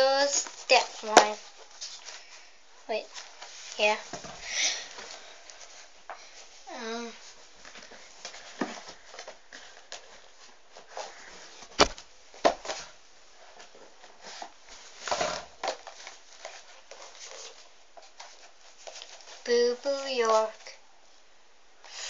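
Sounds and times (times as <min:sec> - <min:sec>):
heavy book thump: 0:11.8 - 0:12.6.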